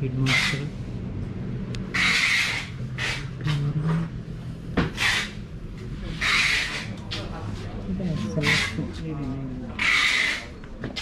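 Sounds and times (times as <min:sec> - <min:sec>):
steady low hum: 0:00.0 - 0:10.8.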